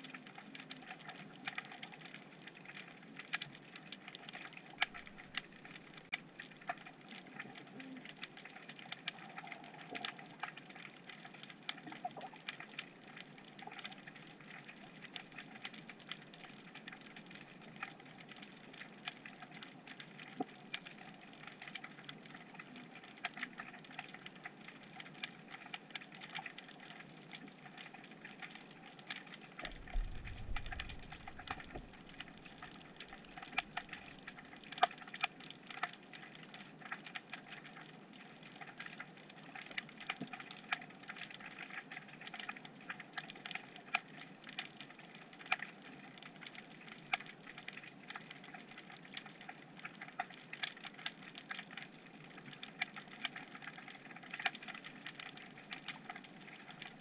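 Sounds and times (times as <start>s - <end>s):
underwater crackling clicks: 0.0s - 57.0s
low rumble: 29.7s - 32.3s.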